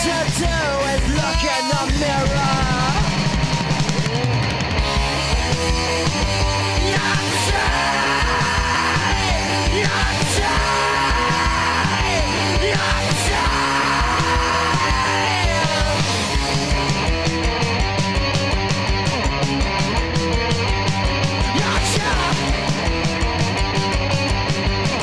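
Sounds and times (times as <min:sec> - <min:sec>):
distorted electric guitar: 0:00.0 - 0:25.0
drums on a driving beat: 0:00.0 - 0:25.0.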